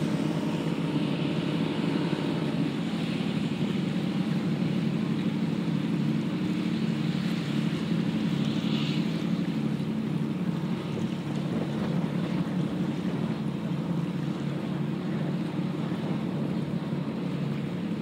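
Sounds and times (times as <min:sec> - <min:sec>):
boat engine droning: 0:00.0 - 0:18.0
wind buffeting microphone: 0:09.0 - 0:18.0.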